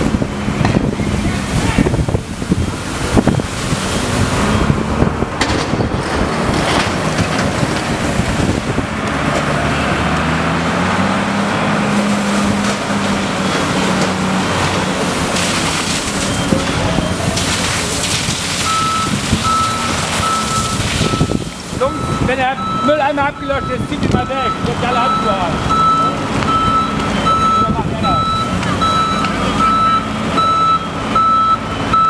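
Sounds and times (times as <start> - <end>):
water jet spraying onto road: 0.0 - 31.1
reversing beeper: 13.3 - 14.0, 16.0 - 17.2, 18.6 - 32.0.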